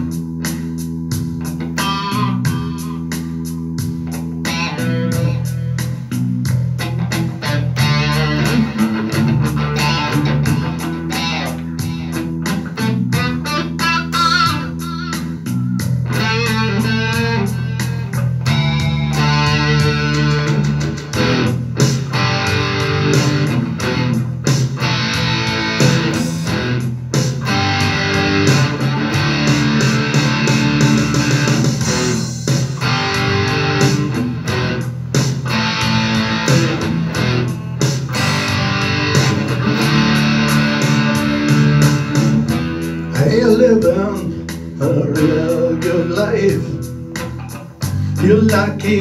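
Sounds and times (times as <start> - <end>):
bass: 0.0 - 49.0
electric guitar playing: 0.0 - 49.0
steady drum beat: 0.0 - 49.0.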